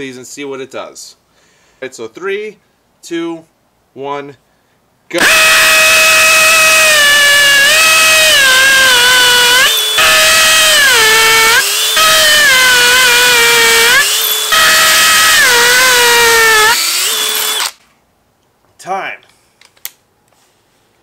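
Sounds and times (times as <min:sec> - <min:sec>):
hammer drill boring into concrete: 0:05.2 - 0:17.8.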